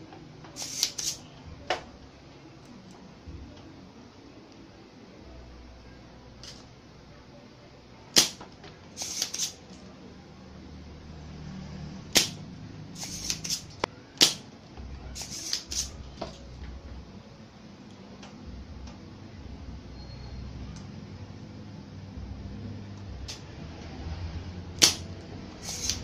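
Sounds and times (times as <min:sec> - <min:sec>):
desoldering pump plunger snaps: 0:24.8 - 0:25.0.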